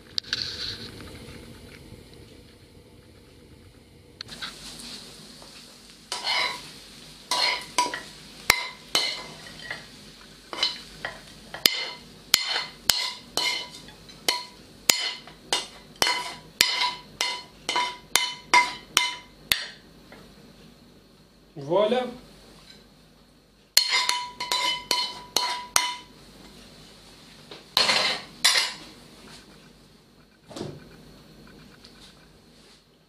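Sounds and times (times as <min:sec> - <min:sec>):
utensil scraping frying pan: 0:06.1 - 0:19.7, 0:23.8 - 0:26.6, 0:27.8 - 0:29.5.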